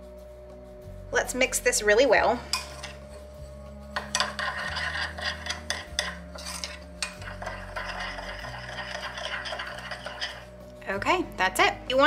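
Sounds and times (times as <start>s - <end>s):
fork scraping in glass bowl: 2.5s - 10.6s.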